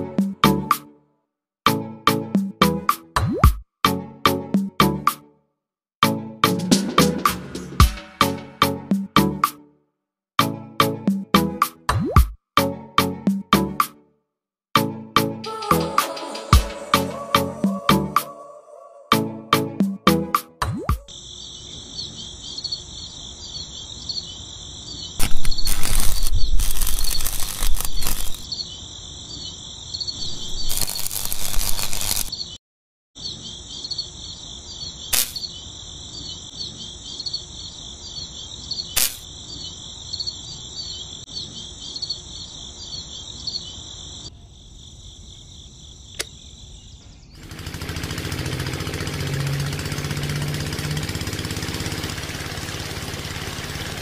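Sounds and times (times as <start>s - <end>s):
high insect-like chirring: 21.1s - 32.6s, 33.2s - 44.3s
loud rustling: 25.2s - 28.4s, 30.2s - 32.3s
sharp clicks: 25.2s - 28.4s, 35.1s - 35.4s, 39.0s - 39.2s
small motor humming and whirring: 25.2s - 28.4s, 30.2s - 32.3s, 47.4s - 54.0s.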